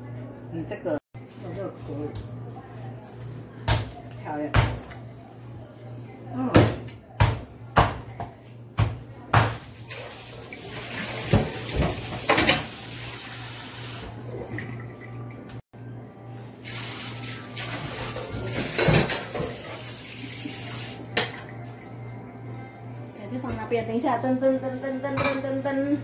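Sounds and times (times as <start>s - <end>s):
tap water running into sink: 9.8s - 15.6s.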